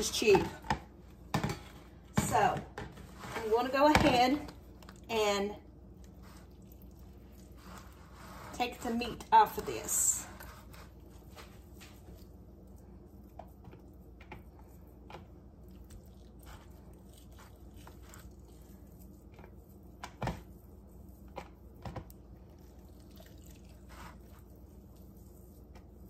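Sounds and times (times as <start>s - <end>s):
wet squishing and tearing of meat: 11.0s - 20.0s, 20.6s - 26.0s.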